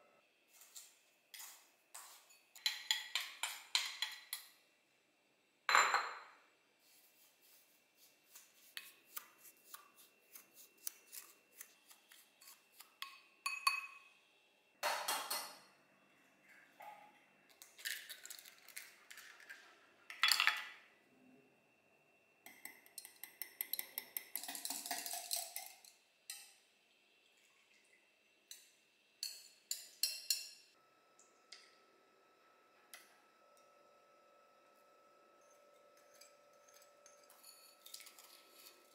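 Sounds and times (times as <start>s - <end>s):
wooden spoon scraping glass bowl: 36.0s - 38.9s.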